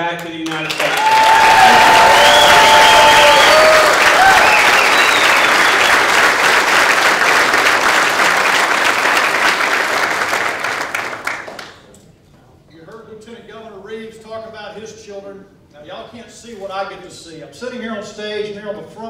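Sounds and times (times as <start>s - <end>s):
crowd applauding: 0.2s - 11.8s
crowd cheering: 0.6s - 11.6s.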